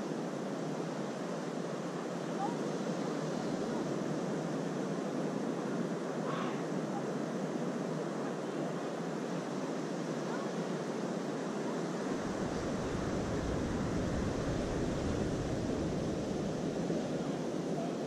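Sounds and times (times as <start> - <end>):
surf waves breaking: 0.6 - 18.0.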